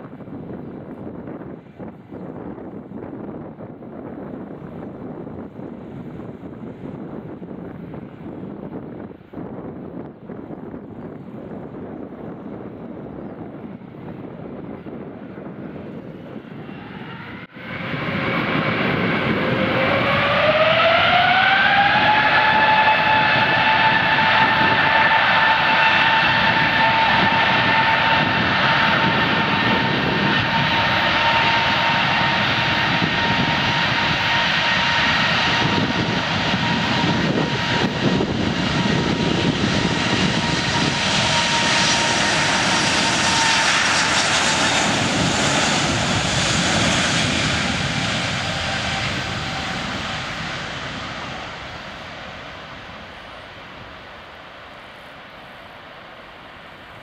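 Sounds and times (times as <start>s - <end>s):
rising engine whine: 14.5s - 57.0s
jet engines spooling up: 15.6s - 57.0s.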